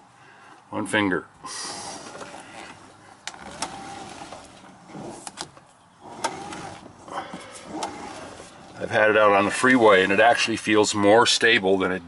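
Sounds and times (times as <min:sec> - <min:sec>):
power steering motor whirring: 0:01.7 - 0:10.2.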